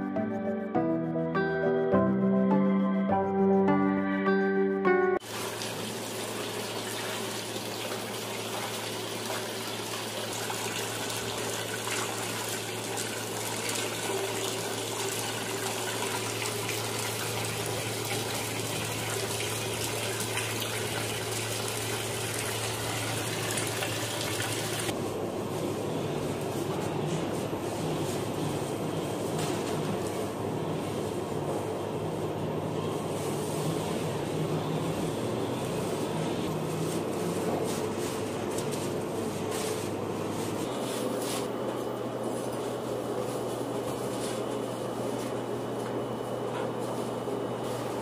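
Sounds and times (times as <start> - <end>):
background music: 0.0 - 5.2
low machine hum: 5.1 - 48.0.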